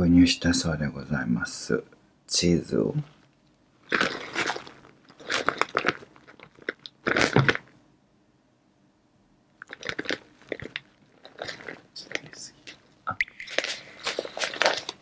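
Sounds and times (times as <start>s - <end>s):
plastic bag crinkling: 3.0s - 7.7s, 9.6s - 15.0s.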